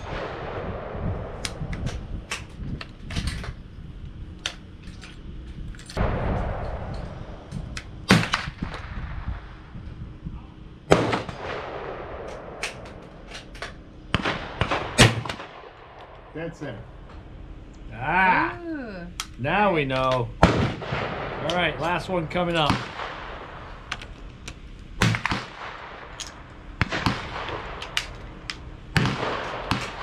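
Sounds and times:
gunshots: 6.0s - 9.5s, 10.9s - 16.8s, 20.4s - 24.1s, 25.0s - 30.0s
rifle firing: 6.0s - 9.5s, 10.9s - 16.3s, 20.4s - 30.0s.

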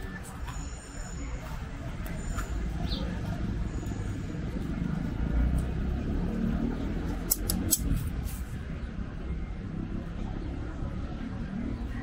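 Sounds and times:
scissors cutting leather: 7.2s - 8.0s.

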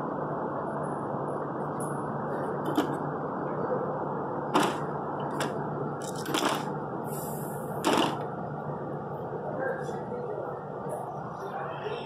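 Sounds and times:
low background hum: 0.0s - 12.0s
sharp clicks and knocks: 4.6s - 6.7s.

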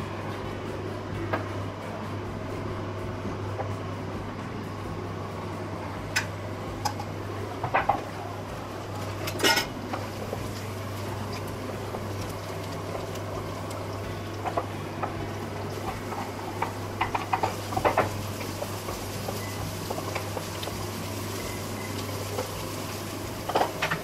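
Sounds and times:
steady low hum: 0.0s - 24.0s
onions sizzling in oil: 6.8s - 24.0s.

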